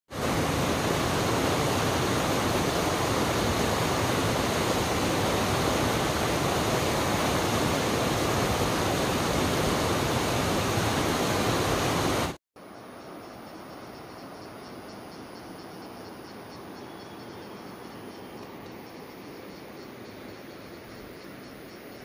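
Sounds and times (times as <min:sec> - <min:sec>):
stream rushing over boulders: 0:00.1 - 0:12.4.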